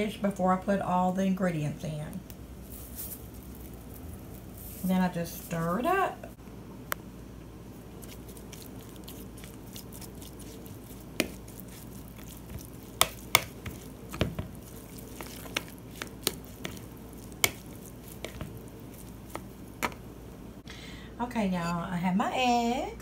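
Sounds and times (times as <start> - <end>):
low steady hum: 0.0 - 23.0
soft squishing: 2.2 - 6.1, 7.0 - 20.6.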